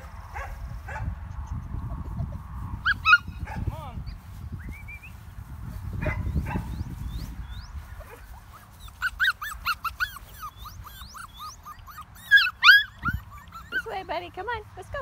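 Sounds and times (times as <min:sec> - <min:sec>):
puppy whining and yelping: 0:02.2 - 0:03.3, 0:07.9 - 0:14.2.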